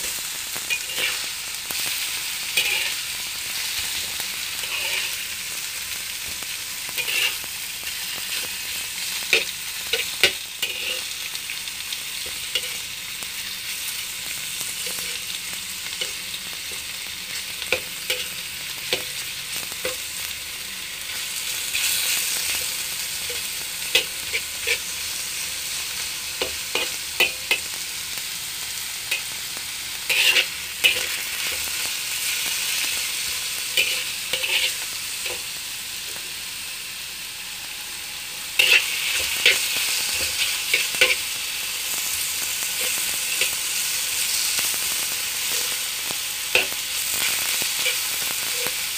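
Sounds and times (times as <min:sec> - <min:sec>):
meat sizzling in a wok: 0:00.0 - 0:48.9
metal spatula scraping a wok: 0:00.7 - 0:04.0, 0:04.6 - 0:05.3, 0:07.0 - 0:08.7, 0:09.3 - 0:11.2, 0:21.1 - 0:27.6, 0:30.0 - 0:35.4, 0:38.6 - 0:41.2.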